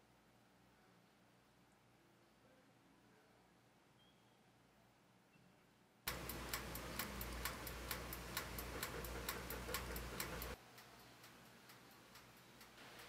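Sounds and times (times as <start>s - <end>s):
low oven hum: 6.1s - 13.0s
oven timer ticking: 6.1s - 13.0s.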